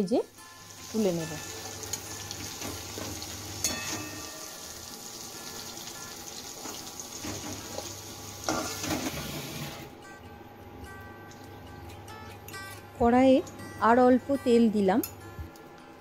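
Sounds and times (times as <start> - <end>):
potatoes sizzling in oil: 0.6 - 9.8.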